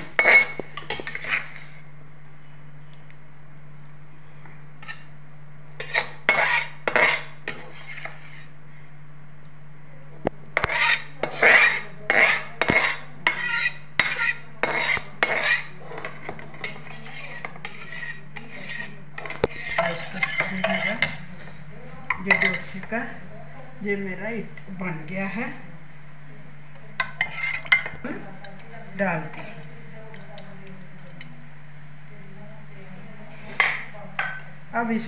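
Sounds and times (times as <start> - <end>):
metal skimmer scraping a pot: 0.0 - 1.8, 5.8 - 8.5, 10.6 - 21.2, 27.0 - 27.9.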